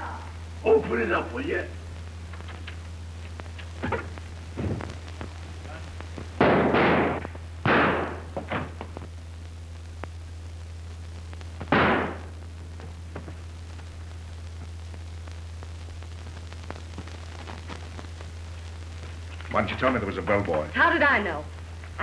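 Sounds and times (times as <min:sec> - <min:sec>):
low soundtrack hum: 0:00.0 - 0:22.0
faint clicks: 0:02.3 - 0:05.4
revolver shots: 0:06.4 - 0:08.7, 0:11.7 - 0:12.3.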